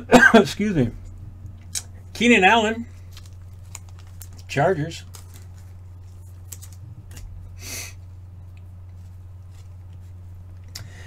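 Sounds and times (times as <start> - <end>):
steady low hum: 0.0 - 11.0
cards shuffling: 3.0 - 7.4, 8.9 - 10.7.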